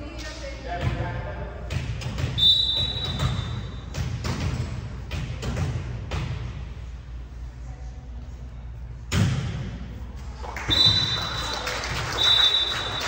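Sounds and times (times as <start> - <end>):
ball thudding in gym hall: 0.7 - 6.8, 9.0 - 10.0.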